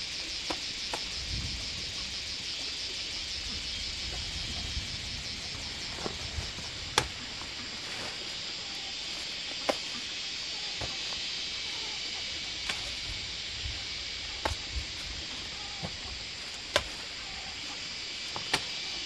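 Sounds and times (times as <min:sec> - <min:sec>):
insect drone: 0:00.0 - 0:19.0
sharp snaps of stalks: 0:00.3 - 0:01.3, 0:06.9 - 0:08.2, 0:09.1 - 0:11.8, 0:12.5 - 0:13.3, 0:14.2 - 0:19.0.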